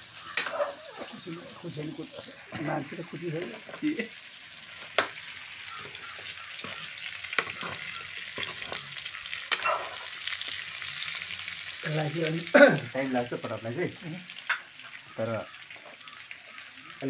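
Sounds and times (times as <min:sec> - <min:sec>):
vegetables sizzling in hot oil: 0:00.0 - 0:17.0
metal ladle scraping a pan: 0:00.3 - 0:01.1, 0:05.8 - 0:08.9, 0:09.5 - 0:10.6.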